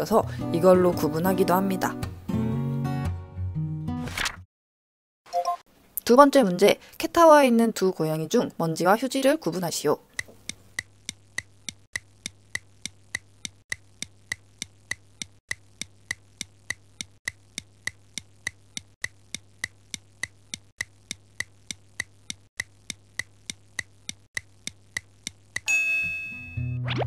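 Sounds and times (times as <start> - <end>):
clock ticking: 10.1 - 25.7.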